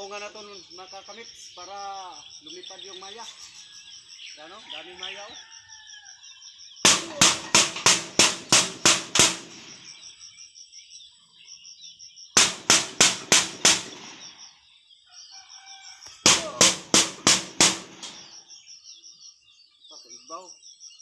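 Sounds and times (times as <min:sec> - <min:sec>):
stick clanging on metal sheet: 0:06.9 - 0:09.7, 0:12.4 - 0:14.2, 0:16.3 - 0:18.3.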